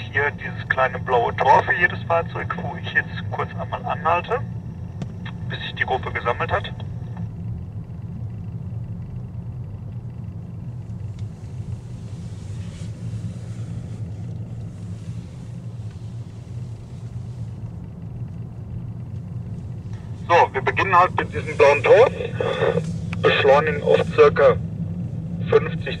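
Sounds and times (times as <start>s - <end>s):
car engine and tyre noise: 10.6s - 23.2s.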